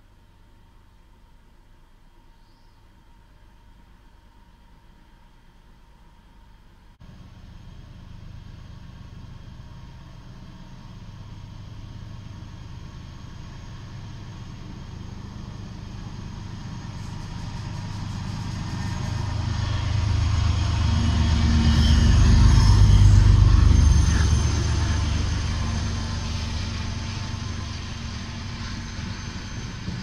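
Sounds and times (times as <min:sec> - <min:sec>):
locomotive engine rumble: 0:07.1 - 0:30.0.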